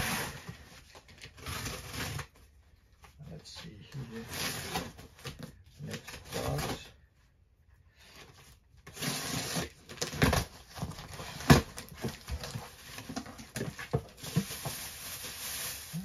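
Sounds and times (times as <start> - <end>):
cardboard box rustling and scraping: 8.2 - 15.9.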